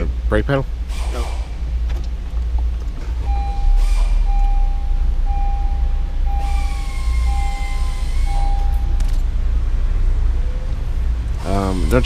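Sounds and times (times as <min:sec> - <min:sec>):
car warning chime beeping: 0:03.2 - 0:09.1.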